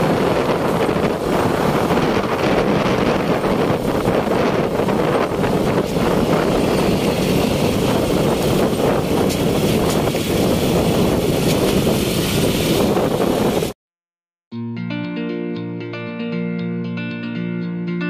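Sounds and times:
vehicle road and engine noise: 0:00.0 - 0:13.8
wind buffeting microphone: 0:00.0 - 0:13.8.

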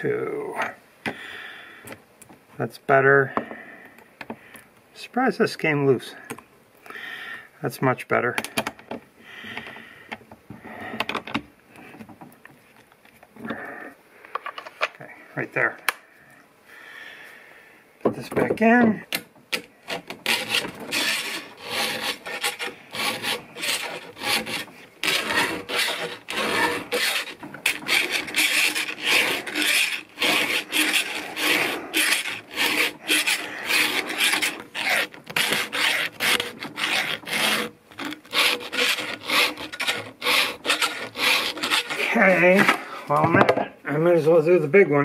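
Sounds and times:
file rasping on chain teeth: 0:19.8 - 0:42.2.

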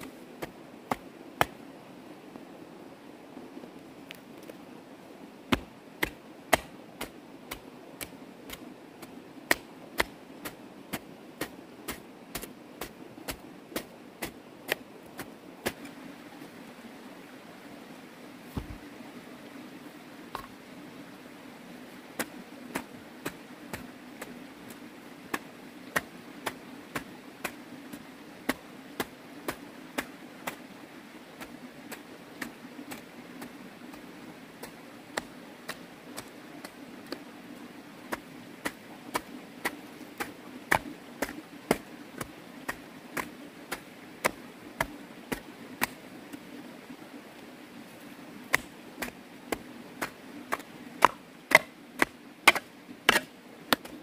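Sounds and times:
digging tool chopping into ground: 0:48.5 - 0:54.0.

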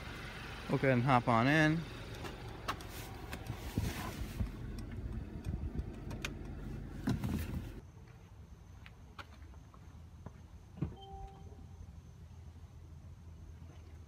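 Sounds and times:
soft thumps climbing into car: 0:07.0 - 0:07.8.

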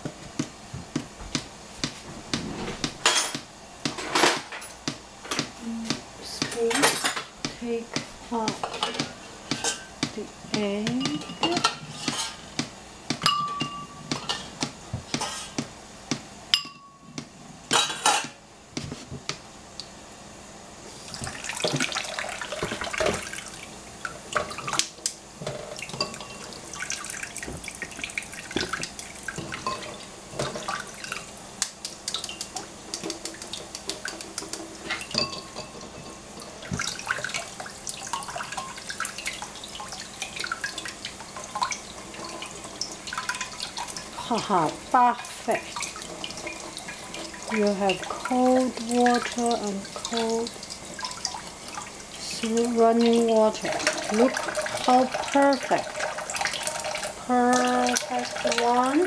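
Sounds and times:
tap water running into sink: 0:00.0 - 0:18.2, 0:21.1 - 0:59.0
spoon clinking on dishes: 0:13.2 - 0:14.5, 0:16.6 - 0:17.2, 0:34.9 - 0:36.2.

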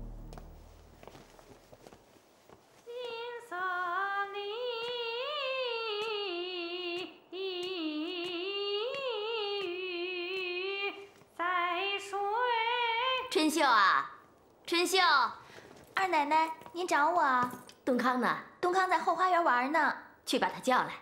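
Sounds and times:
woman singing wordless tune: 0:02.8 - 0:14.1.

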